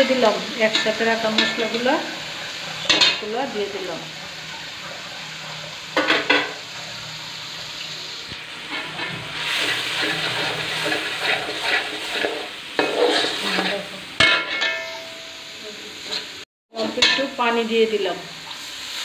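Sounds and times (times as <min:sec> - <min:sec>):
frying sizzle: 0:00.0 - 0:19.0
spatula scraping a metal pan: 0:08.5 - 0:17.1.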